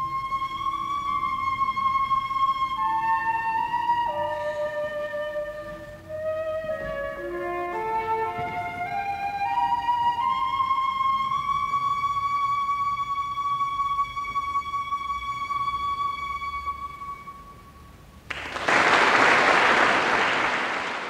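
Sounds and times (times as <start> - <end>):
flute holding high note: 0.0 - 18.0
audience applause: 18.3 - 21.0.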